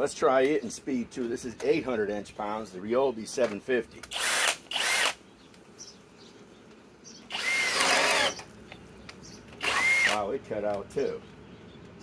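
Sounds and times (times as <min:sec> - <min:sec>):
cordless drill boring into wood: 0:04.1 - 0:05.2, 0:07.3 - 0:08.5, 0:09.6 - 0:10.2.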